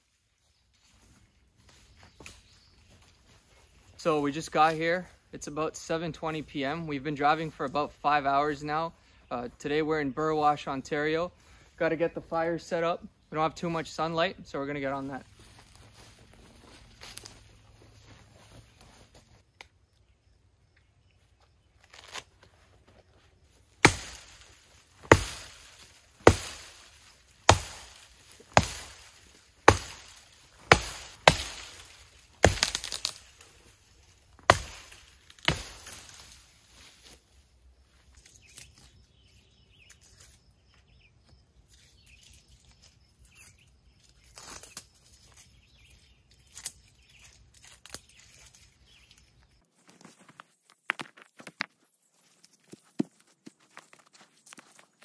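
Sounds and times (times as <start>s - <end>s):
axe chopping into tree trunk: 23.8s - 33.2s, 34.4s - 36.3s.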